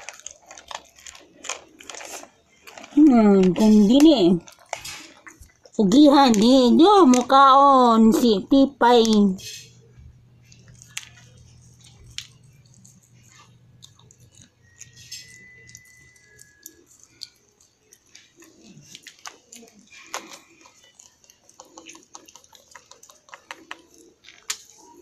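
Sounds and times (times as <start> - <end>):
dog chewing dry treats: 0.0 - 25.0.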